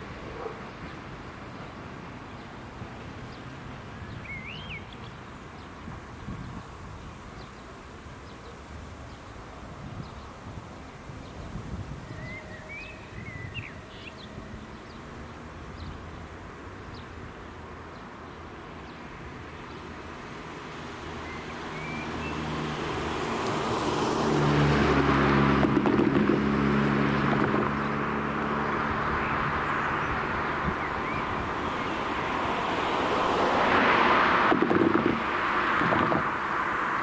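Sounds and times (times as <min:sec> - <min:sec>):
birds chirping faintly: 0:00.2 - 0:20.1
car passing by: 0:18.6 - 0:37.0.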